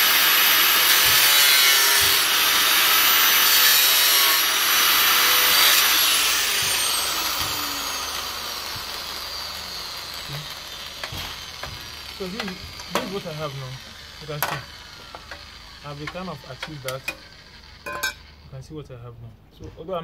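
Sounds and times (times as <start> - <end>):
angle grinder cutting metal: 0.0 - 18.6
grinder spinning down whine: 0.0 - 18.7
metal pieces knocking: 17.8 - 18.2.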